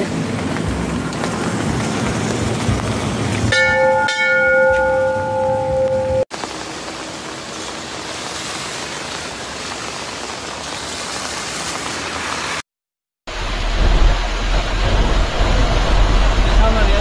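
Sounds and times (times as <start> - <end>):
deep rumble of surging water: 13.3 - 17.0.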